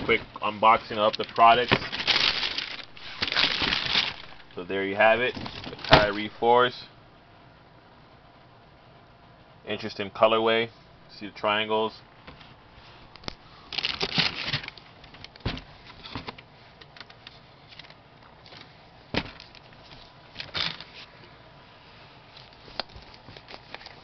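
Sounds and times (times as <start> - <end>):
shoes rustling in cardboard box: 0.1 - 4.4.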